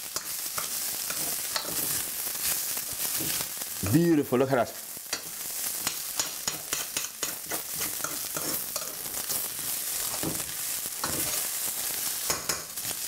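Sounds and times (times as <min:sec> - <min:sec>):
sizzling hiss from a pan: 0:00.0 - 0:13.0
spoon scraping a saucepan: 0:06.2 - 0:09.5.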